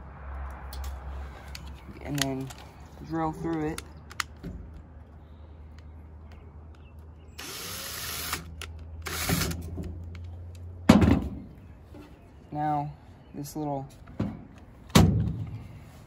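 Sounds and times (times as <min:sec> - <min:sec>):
cordless drill boring: 0:07.4 - 0:09.6.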